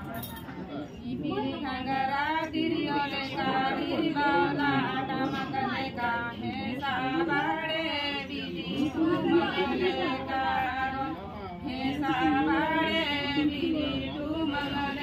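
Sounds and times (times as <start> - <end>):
women singing unaccompanied: 1.0 - 15.0.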